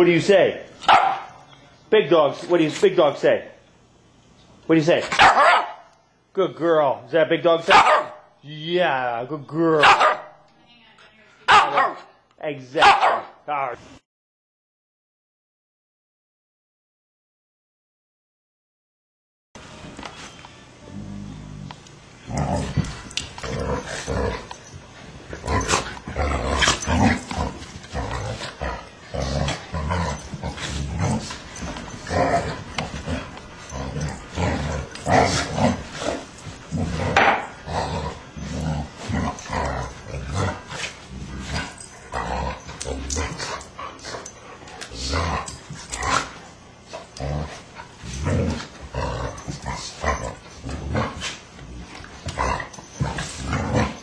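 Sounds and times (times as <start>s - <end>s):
dogs play-fighting vocalising: 22.3s - 54.0s.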